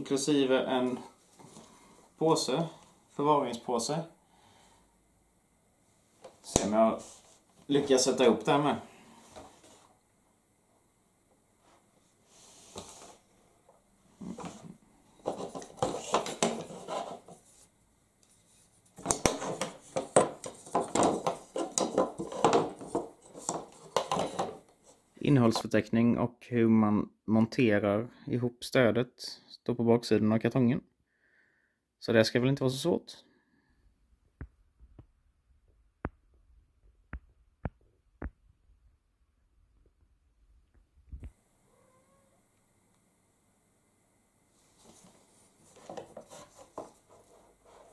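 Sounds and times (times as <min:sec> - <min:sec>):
tubes knocking on wooden table: 0:19.0 - 0:24.6.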